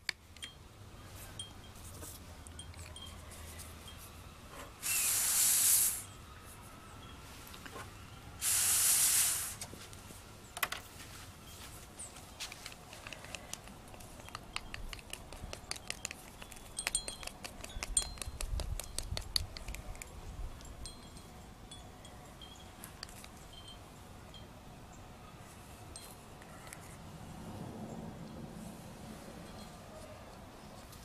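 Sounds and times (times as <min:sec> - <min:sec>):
air hissing through a straw: 0:04.8 - 0:06.1, 0:08.4 - 0:09.7
wooden stick tapping plastic cup: 0:13.0 - 0:20.1.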